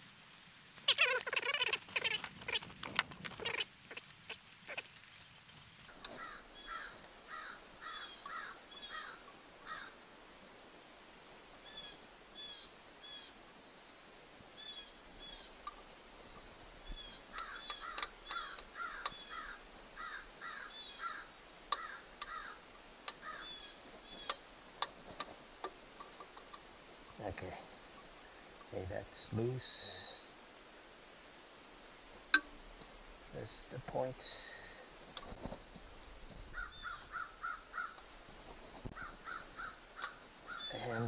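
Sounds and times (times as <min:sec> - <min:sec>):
bird chirping: 0:00.0 - 0:09.8, 0:14.6 - 0:22.6, 0:36.0 - 0:41.0.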